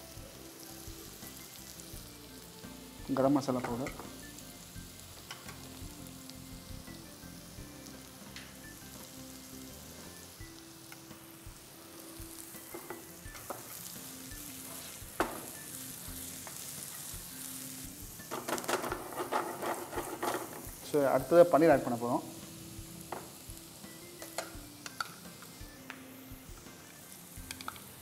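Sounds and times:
food sizzling in a pan: 0:00.0 - 0:28.0
utensils clicking: 0:27.4 - 0:27.9.

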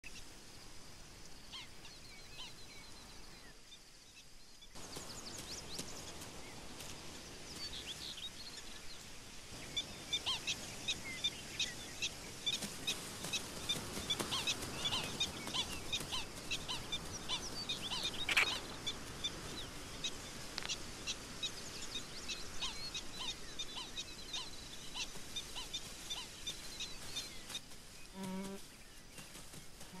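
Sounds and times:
insects: 0:00.0 - 0:30.0
outdoor hiss: 0:00.1 - 0:30.0.

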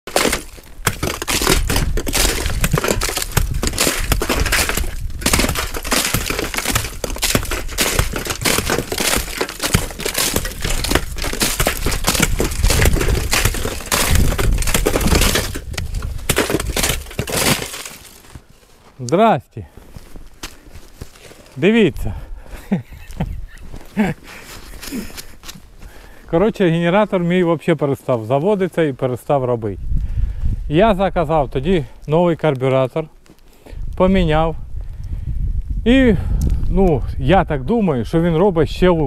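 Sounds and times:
ice and snow crunching: 0:00.1 - 0:29.6.

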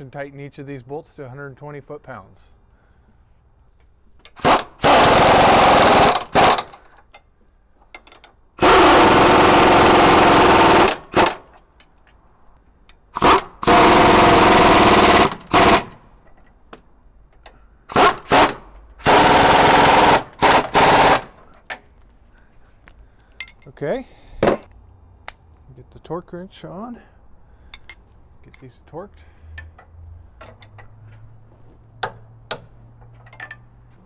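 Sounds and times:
impact wrench hammering: 0:13.2 - 0:16.0, 0:32.0 - 0:32.8.

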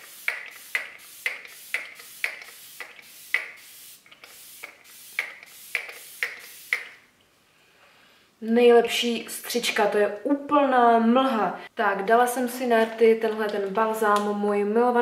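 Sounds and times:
spray bottle pump clicking and hissing: 0:00.0 - 0:07.1.

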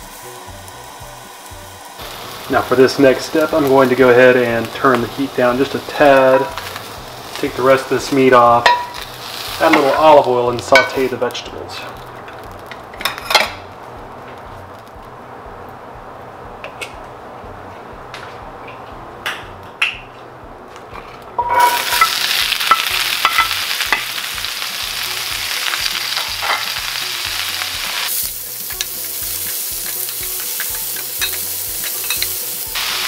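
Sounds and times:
vegetables sizzling in hot oil: 0:00.0 - 0:13.7, 0:21.4 - 0:33.0.

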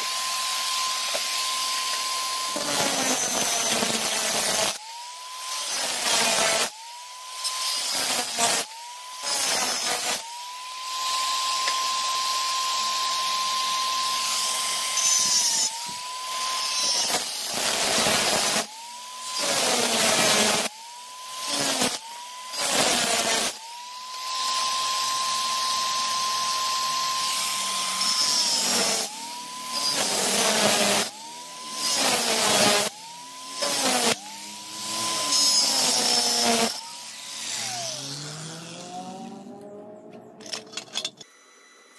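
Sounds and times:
angle grinder cutting steel: 0:00.0 - 0:41.9.

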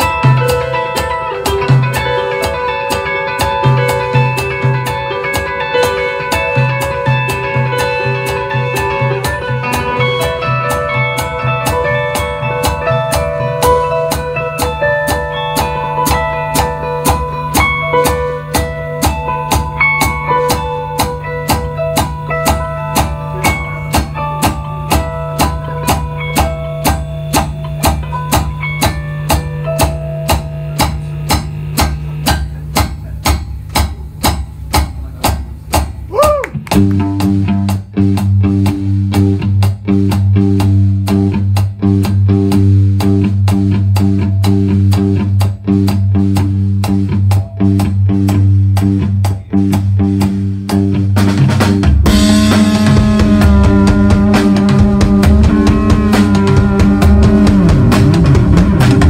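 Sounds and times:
live rock band playing: 0:00.0 - 0:59.0
steady drum beat: 0:00.0 - 0:59.0.

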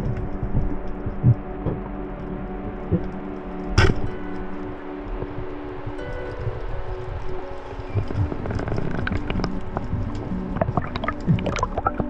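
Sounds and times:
low underwater hum: 0:00.0 - 0:12.0
soft low thumps: 0:00.0 - 0:12.0.

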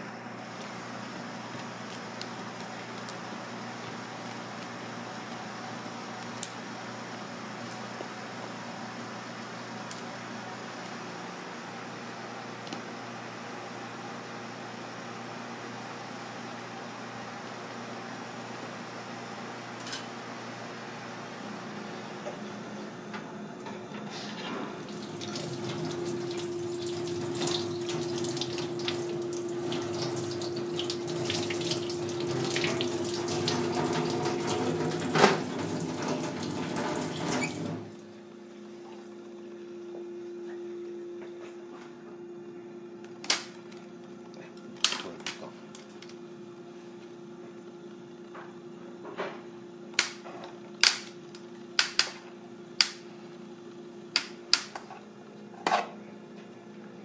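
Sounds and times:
steady hum: 0:00.0 - 0:57.0
water running: 0:24.7 - 0:37.9.

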